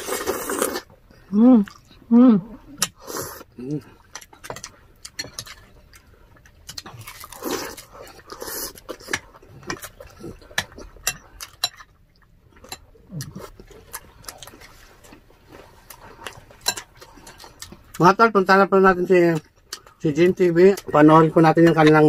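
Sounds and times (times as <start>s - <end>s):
slurping and chewing noodles: 0.0s - 0.9s, 2.7s - 11.4s, 12.2s - 18.1s.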